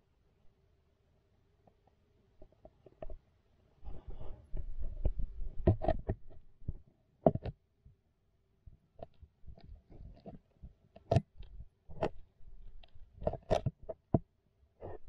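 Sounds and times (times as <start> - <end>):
turtle claws tapping and scraping: 3.8 - 7.6, 9.0 - 14.2.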